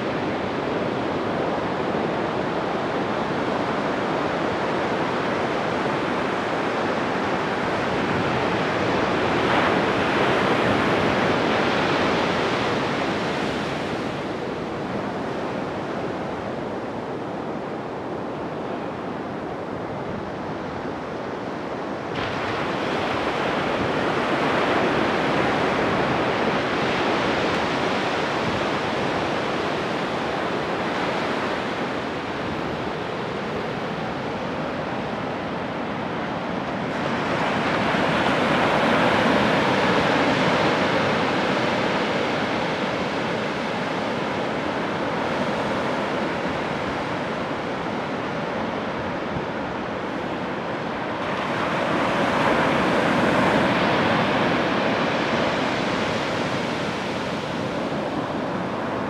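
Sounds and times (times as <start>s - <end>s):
surf breaking on a beach: 0.0s - 59.0s.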